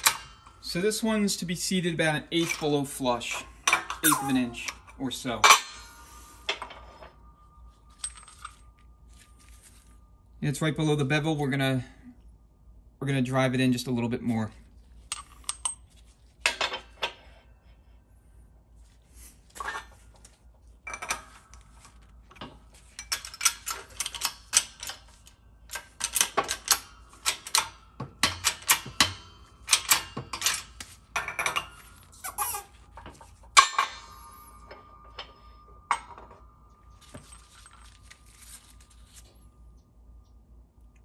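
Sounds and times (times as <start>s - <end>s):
sharp metal clank ringing: 0.0s - 8.8s, 33.5s - 37.3s
metal clinks from shop press: 2.4s - 7.0s.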